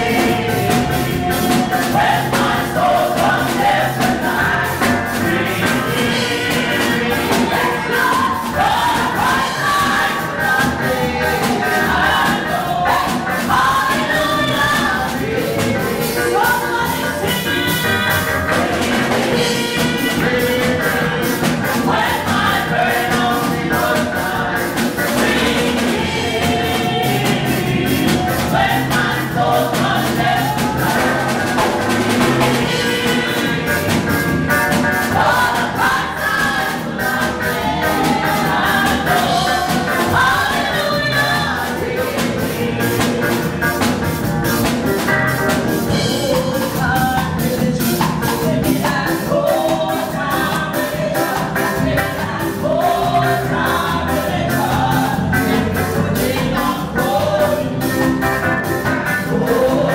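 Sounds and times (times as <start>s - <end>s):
band with drums: 0.0s - 59.9s
group singing worship song: 0.0s - 59.9s.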